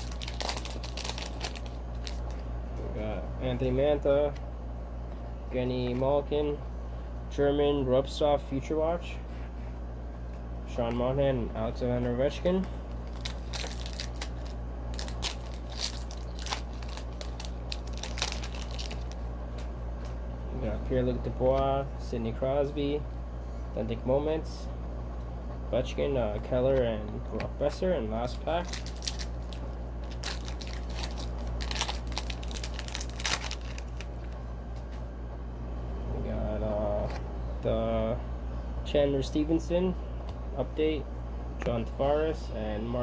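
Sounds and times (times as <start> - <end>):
foil wrapper crinkling and tearing: 0.0 - 2.4, 12.9 - 19.2, 28.2 - 34.4
trading cards clicking and crackling: 0.0 - 2.4, 12.5 - 19.7, 28.2 - 35.0
steady low hum: 0.0 - 43.0.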